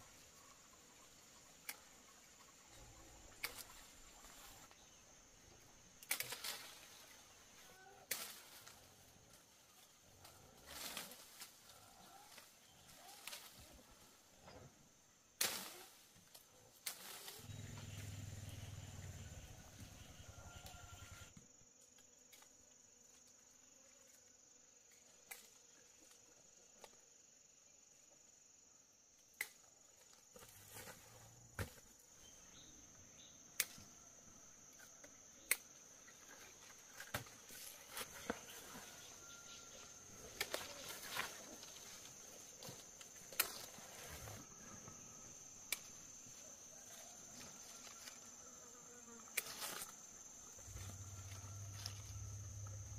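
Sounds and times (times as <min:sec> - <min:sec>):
insects trilling: 0:00.0 - 0:52.9.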